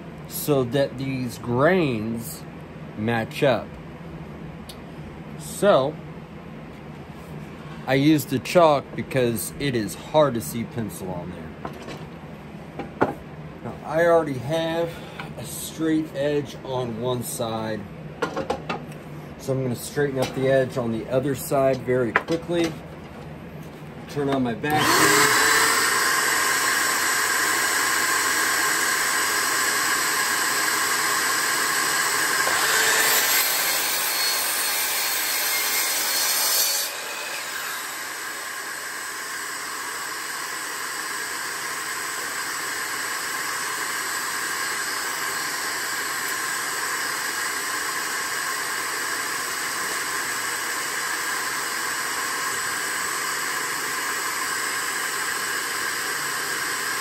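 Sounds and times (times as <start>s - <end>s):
shop vacuum hiss: 13.9s - 17.8s, 24.5s - 57.0s
miter saw cutting wood: 24.7s - 57.0s.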